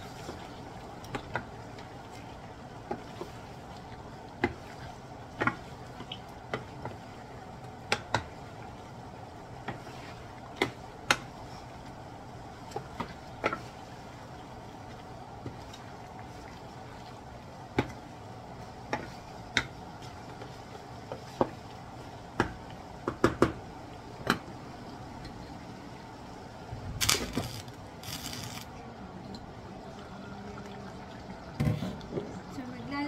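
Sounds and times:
sauce simmering hiss: 0:00.0 - 0:33.0.

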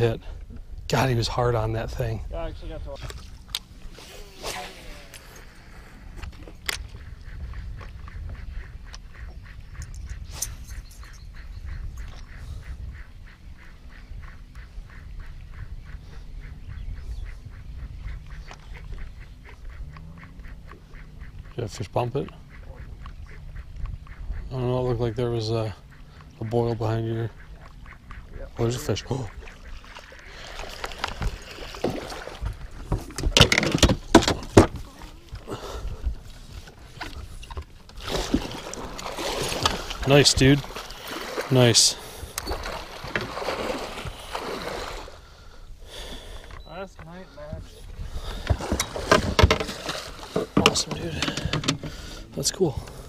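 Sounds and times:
wind on microphone: 0:06.0 - 0:21.5, 0:22.5 - 0:25.2, 0:47.5 - 0:50.5
water sloshing: 0:17.5 - 0:45.6, 0:46.3 - 0:53.0.

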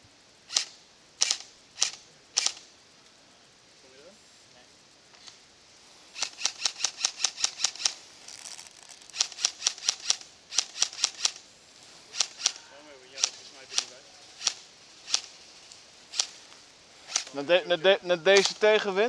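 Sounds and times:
airsoft rifle firing: 0:00.5 - 0:02.7, 0:09.1 - 0:11.4, 0:13.2 - 0:15.4, 0:17.0 - 0:17.4.

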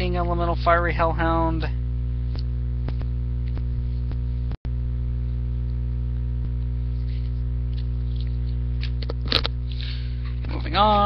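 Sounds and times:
electrical mains hum: 0:00.0 - 0:11.0
trading cards rustling: 0:06.9 - 0:11.0.

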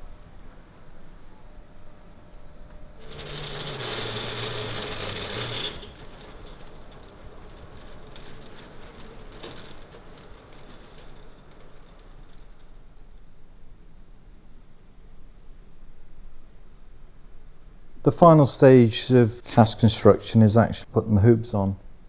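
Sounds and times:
roller shutter door rolling up: 0:02.9 - 0:13.5.

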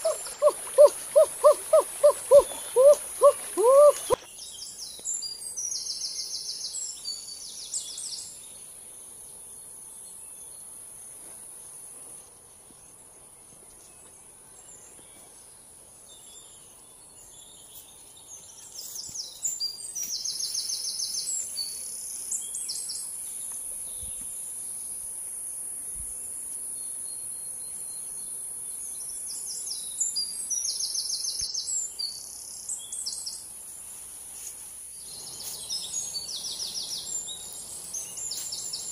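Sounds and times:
rapid chirping calls: 0:00.0 - 0:04.2
insects droning: 0:00.0 - 0:14.8, 0:18.1 - 0:38.9.

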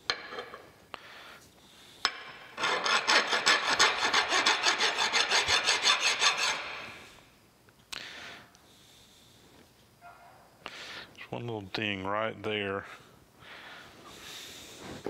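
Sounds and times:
metal rasping on a file: 0:02.6 - 0:07.1.

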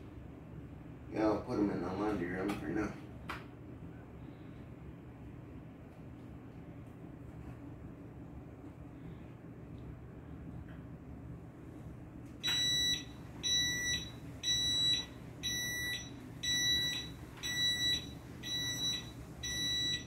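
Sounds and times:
high electronic warning beeps: 0:12.4 - 0:20.0.

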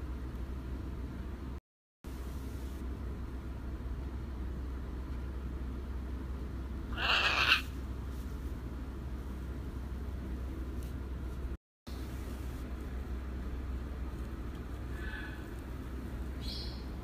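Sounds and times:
macaw squawk: 0:06.9 - 0:07.7.

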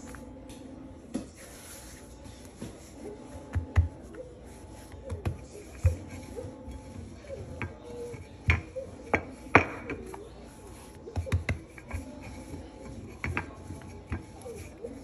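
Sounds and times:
rolling pin knocking on countertop: 0:07.6 - 0:10.0, 0:11.1 - 0:14.4.

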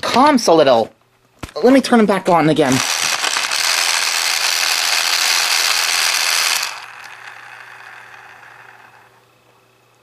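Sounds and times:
faint motor hum: 0:00.0 - 0:10.0
toy motor and gears whirring: 0:02.7 - 0:09.2.

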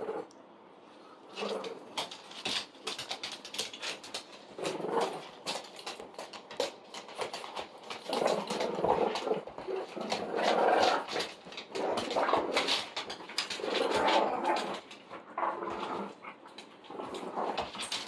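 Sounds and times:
dogs growling and grunting: 0:00.0 - 0:00.4, 0:01.3 - 0:18.0
claws clicking on wood floor: 0:01.4 - 0:18.0.

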